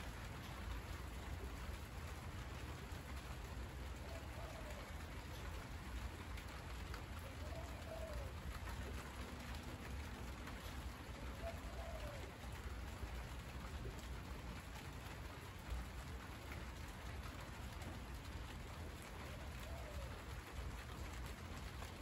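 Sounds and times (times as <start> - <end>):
rain falling on leaves: 0.0 - 22.0
bird calling: 11.2 - 12.3.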